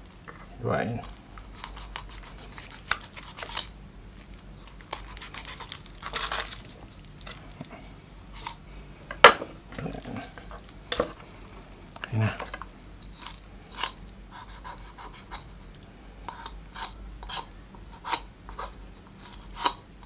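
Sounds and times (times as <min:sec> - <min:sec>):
wet tearing of raw chicken: 0:01.0 - 0:07.6.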